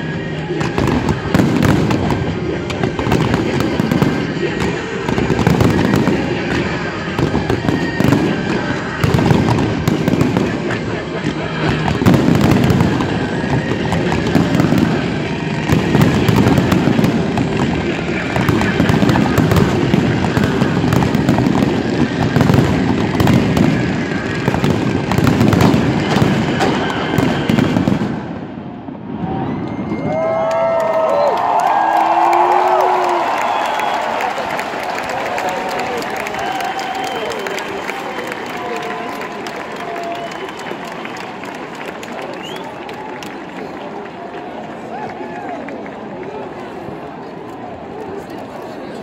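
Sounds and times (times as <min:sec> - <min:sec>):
fireworks bangs and crackling: 0:00.0 - 0:30.3.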